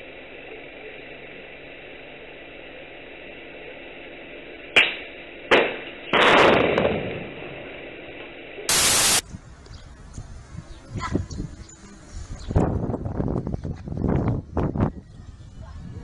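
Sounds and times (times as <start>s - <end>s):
burst of static: 0.0s - 9.2s
grenade explosion: 5.5s - 7.7s
hissy camera audio: 8.7s - 9.6s.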